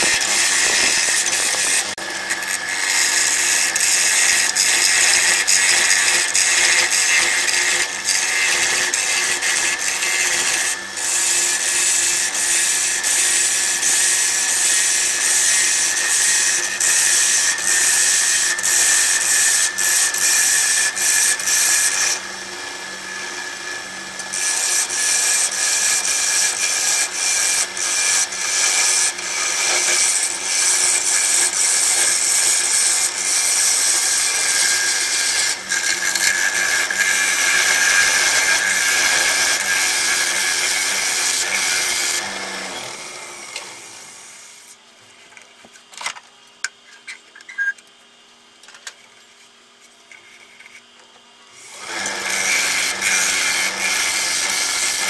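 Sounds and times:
gouge scraping spinning wood: 0:00.0 - 0:43.1.

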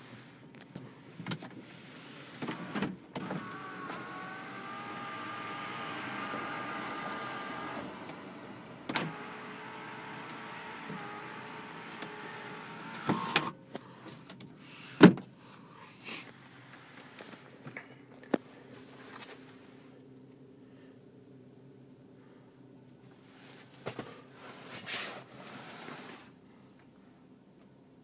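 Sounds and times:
electric window motor whining: 0:02.3 - 0:13.6.

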